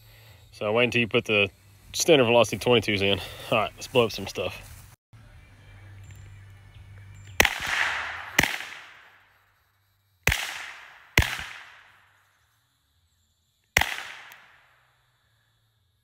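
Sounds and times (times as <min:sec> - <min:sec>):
suppressed gunshots: 0:07.4 - 0:09.2, 0:10.2 - 0:12.0, 0:13.8 - 0:14.6.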